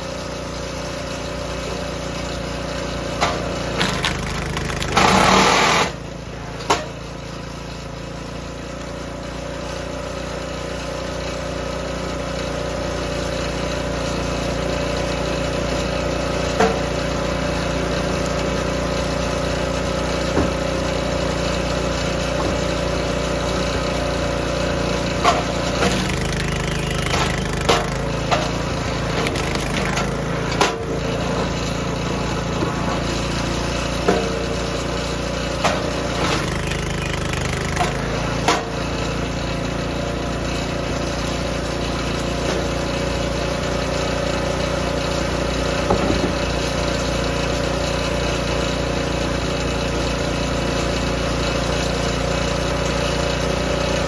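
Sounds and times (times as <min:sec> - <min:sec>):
log splitter engine running: 0:00.0 - 0:54.0
wood cracking and knocking: 0:03.8 - 0:05.5, 0:25.3 - 0:28.4, 0:29.2 - 0:30.8.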